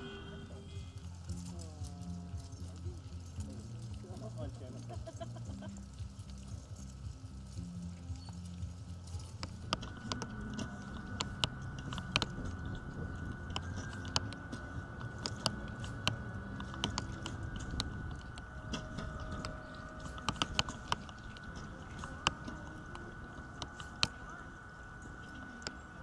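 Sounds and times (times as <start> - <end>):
faint steady high tone: 0.0 - 3.8, 6.5 - 26.0
wind rumbling on microphone: 0.0 - 26.0
sharp clicks and knocks: 8.2 - 24.4.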